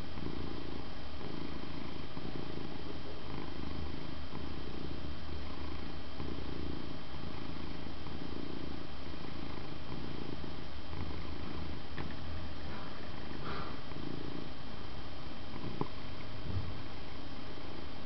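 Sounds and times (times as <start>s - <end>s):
cat purring: 0.0s - 18.0s.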